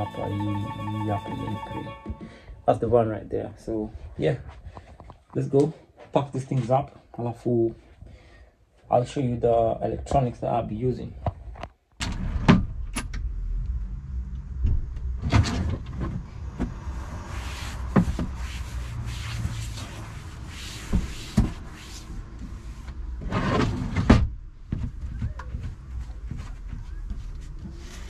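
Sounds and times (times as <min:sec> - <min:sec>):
cloth wiping wood: 0:17.2 - 0:22.9.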